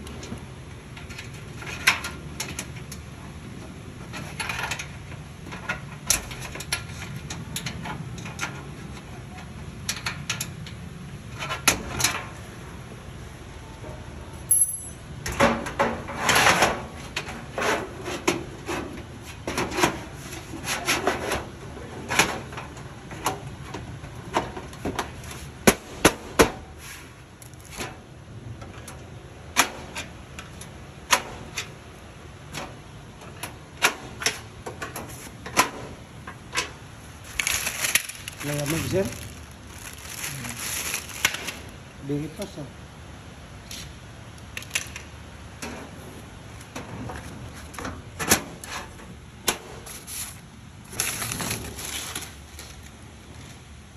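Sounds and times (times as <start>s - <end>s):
metal filing cabinet drawer clatter: 15.2s - 26.7s, 46.7s - 50.0s.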